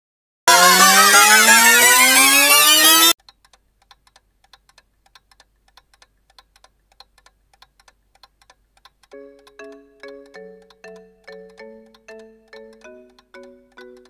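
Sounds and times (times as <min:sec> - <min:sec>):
clock ticking: 0:03.0 - 0:14.0
phone ringtone tune: 0:09.2 - 0:14.0.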